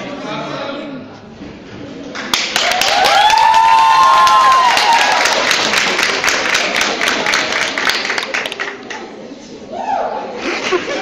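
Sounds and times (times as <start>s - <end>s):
children clapping and cheering: 2.2s - 9.0s.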